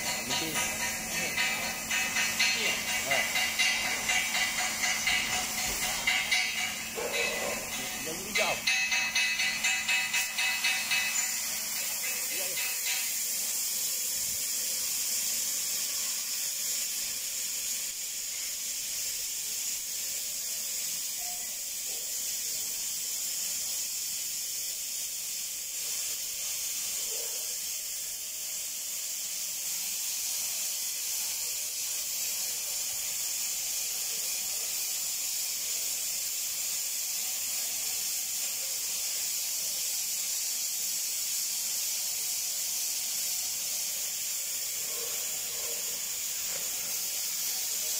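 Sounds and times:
cutting torch hissing: 0.0 - 47.9.

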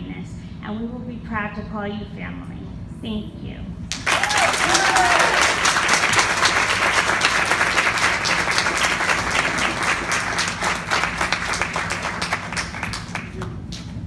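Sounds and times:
audience applauding: 3.9 - 13.9.

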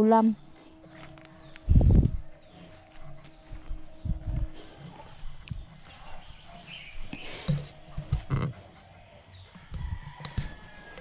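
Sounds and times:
insect chirping: 0.0 - 11.0
footsteps through grass: 0.4 - 7.9.

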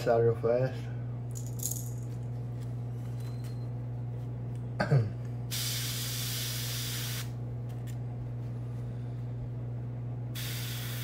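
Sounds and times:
air compressor hum: 0.0 - 11.0
airbrush hissing: 10.4 - 11.0.

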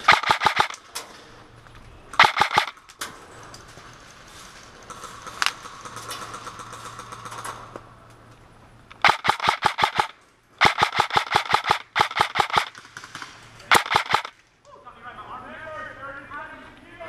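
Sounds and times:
airsoft rifle full-auto bursts: 0.0 - 0.8, 2.2 - 2.8, 9.0 - 14.4.

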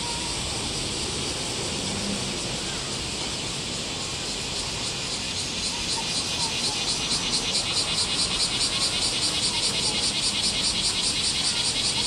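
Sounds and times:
cicada chorus: 0.0 - 12.0.

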